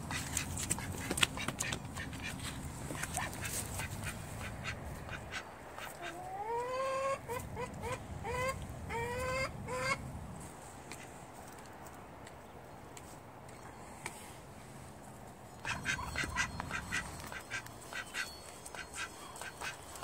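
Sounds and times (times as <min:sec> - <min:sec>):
duck quacking: 0:00.1 - 0:02.4, 0:03.0 - 0:10.0, 0:15.6 - 0:19.8.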